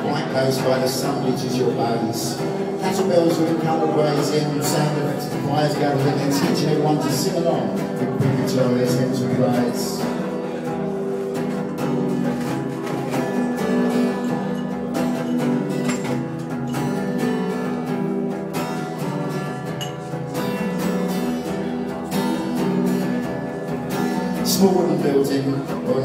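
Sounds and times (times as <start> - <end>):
acoustic guitar strumming: 0.0 - 26.0.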